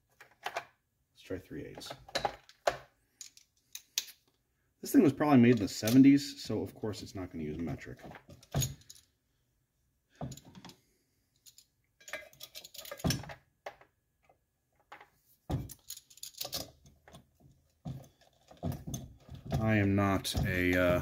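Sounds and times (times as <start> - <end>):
metal tools clicking and clinking: 1.8 - 4.3, 5.4 - 6.2, 8.4 - 9.1, 11.4 - 13.4, 15.0 - 17.2.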